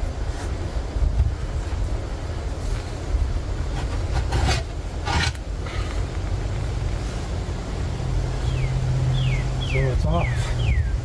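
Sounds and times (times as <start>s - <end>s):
pry bar scraping tire and rim: 3.7s - 5.8s.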